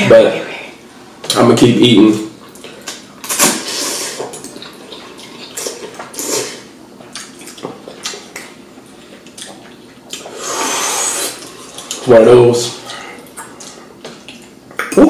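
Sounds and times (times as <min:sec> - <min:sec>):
slurping noodles: 0:03.3 - 0:04.4, 0:05.0 - 0:06.7, 0:10.2 - 0:12.0.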